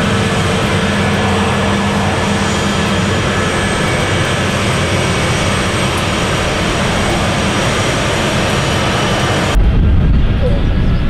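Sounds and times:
jet engines roaring with whine: 0.0 - 11.0.

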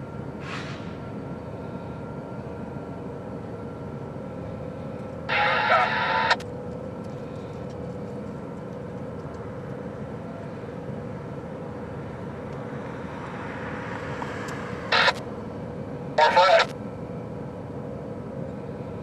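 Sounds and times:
distant freight train rumble: 0.0 - 19.0
scanner radio squelch crackle: 5.3 - 8.3, 14.9 - 15.3, 16.2 - 16.8.

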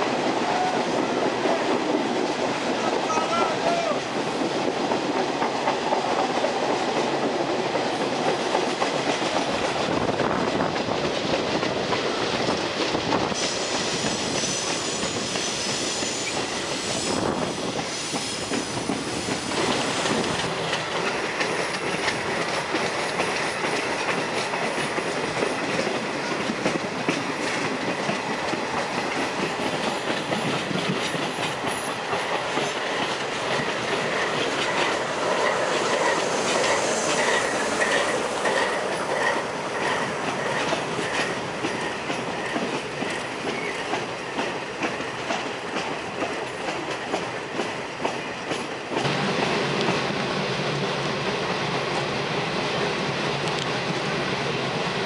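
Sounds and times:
train wheels rumbling on rails: 0.0 - 55.0
high thin wheel squeal: 13.4 - 17.2.

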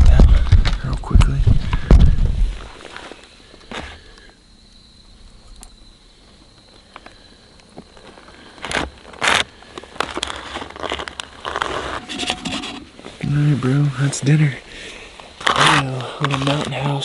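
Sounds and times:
foil pouch crinkling: 7.9 - 13.3
loud handling noises: 8.6 - 13.4.

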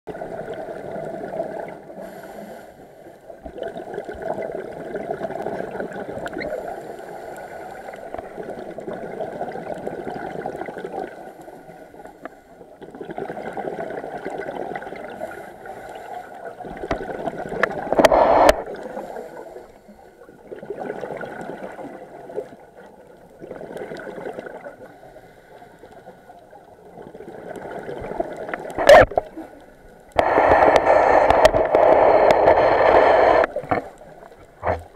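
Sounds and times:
exhaled bubbles underwater: 0.1 - 2.0, 3.3 - 7.0, 7.8 - 11.4, 12.1 - 25.0, 26.7 - 29.6.

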